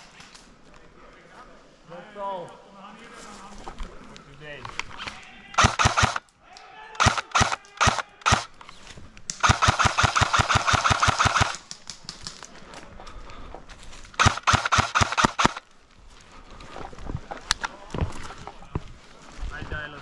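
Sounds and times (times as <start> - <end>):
airsoft guns firing: 5.6 - 6.2, 7.0 - 8.5, 9.3 - 11.8, 14.2 - 15.6.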